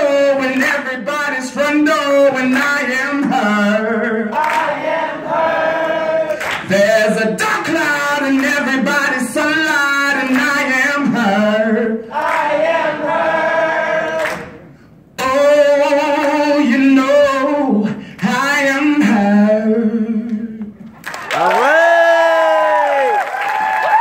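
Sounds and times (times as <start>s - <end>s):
person singing unaccompanied: 6.1s - 14.2s, 15.2s - 20.7s.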